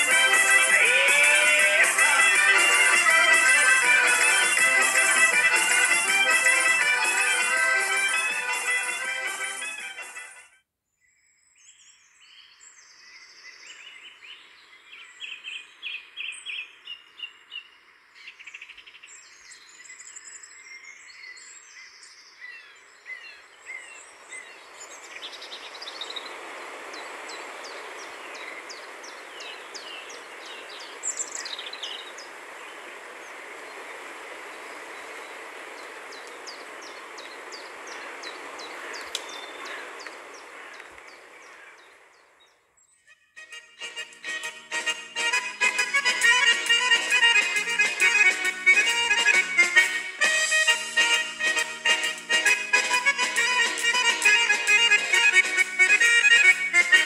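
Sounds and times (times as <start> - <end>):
birds chirping: 0.0 - 10.2, 11.5 - 57.0
outdoor noise: 11.3 - 57.0.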